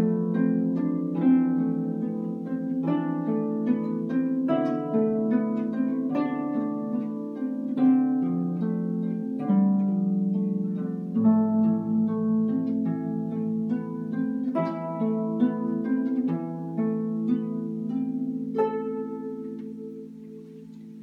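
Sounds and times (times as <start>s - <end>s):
plucked harp notes: 0.0s - 21.0s.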